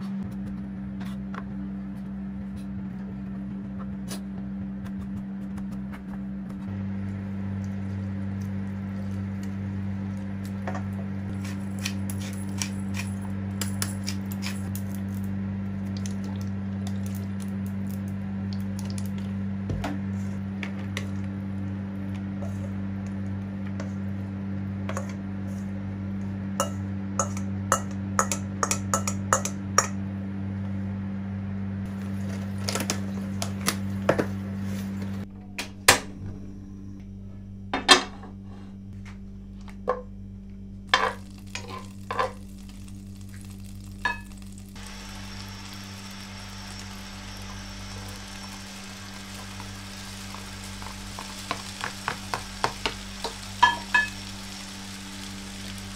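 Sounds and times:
steady low hum: 0.0 - 55.9
faint hiss of heating pan: 40.9 - 55.9.

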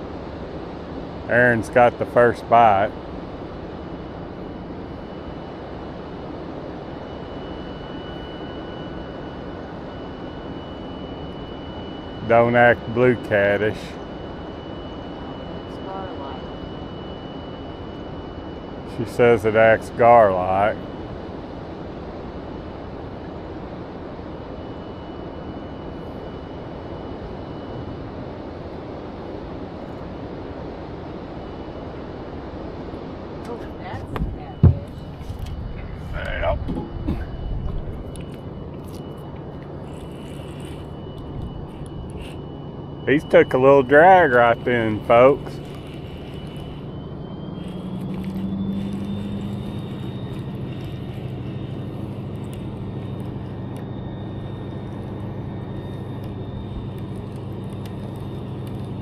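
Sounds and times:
faint high whine: 0.0 - 59.0
thin high tone: 6.8 - 20.9, 33.4 - 59.0.

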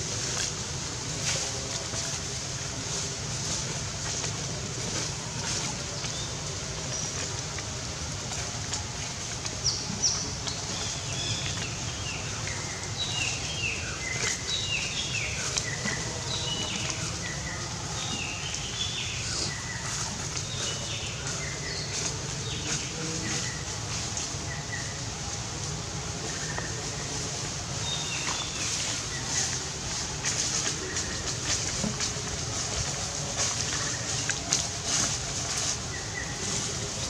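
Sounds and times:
birds chirping: 9.4 - 25.4.

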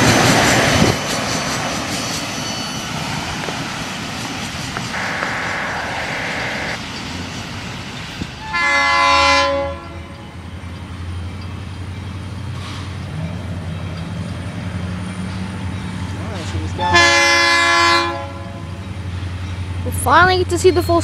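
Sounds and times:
train rumble: 0.0 - 21.0
locomotive air horn blast: 4.9 - 6.8, 8.4 - 10.0, 16.8 - 18.6.

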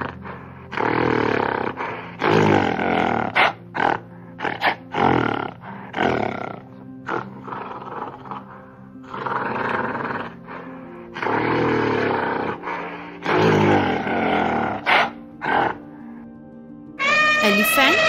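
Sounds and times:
background music: 0.0 - 18.0
gorilla calling: 17.0 - 18.0.

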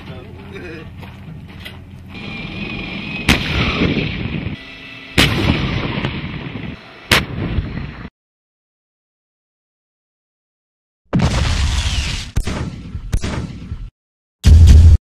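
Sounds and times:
tank gun firing with echo: 3.3 - 4.4, 5.2 - 6.4, 12.4 - 13.9.

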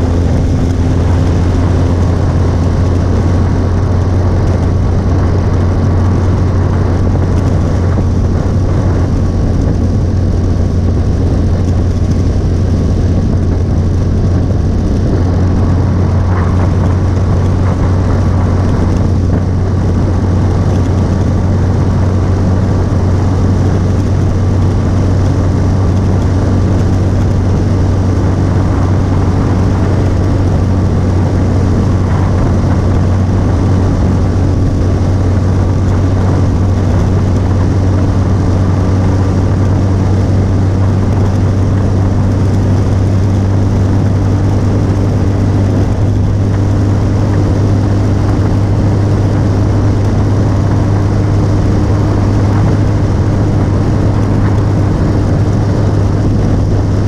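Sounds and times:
motorcycle engine running: 0.0 - 57.0
wind rushing: 0.0 - 57.0.

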